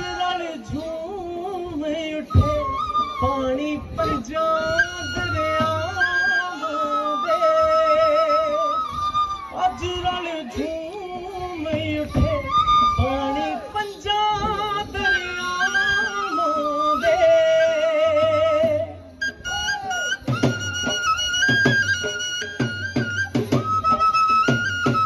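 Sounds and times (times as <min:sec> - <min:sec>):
drum beats: 0:18.4 - 0:25.0.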